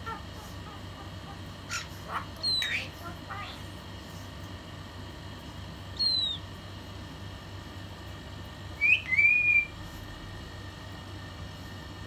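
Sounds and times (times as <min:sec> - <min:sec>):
bird whistling: 0:01.7 - 0:02.9, 0:06.0 - 0:06.5, 0:08.8 - 0:09.8.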